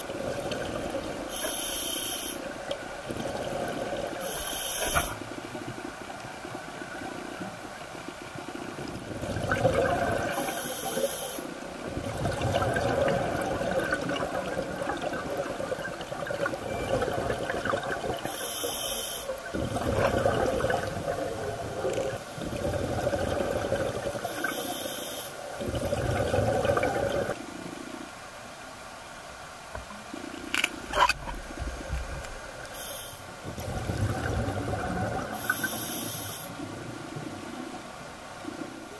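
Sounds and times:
regulator hissing inhales: 1.3s - 2.5s, 4.2s - 5.2s, 18.3s - 19.3s, 24.4s - 25.4s, 32.7s - 33.3s, 35.4s - 36.5s
bubbling exhalation underwater: 9.2s - 10.4s, 12.0s - 18.3s, 19.5s - 24.3s, 25.6s - 27.4s, 33.5s - 35.6s.

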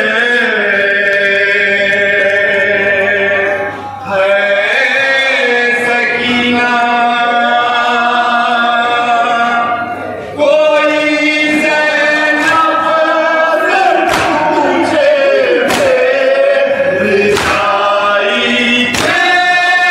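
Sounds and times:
men chanting a mourning lament: 0.0s - 19.9s
sharp strikes: 14.0s - 14.9s, 15.6s - 16.3s, 17.3s - 18.0s, 18.9s - 19.4s.

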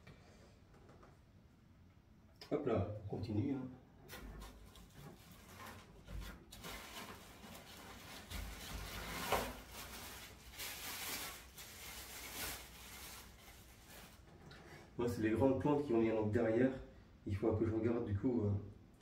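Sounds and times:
packaging rustling and scraping: 4.1s - 14.4s.

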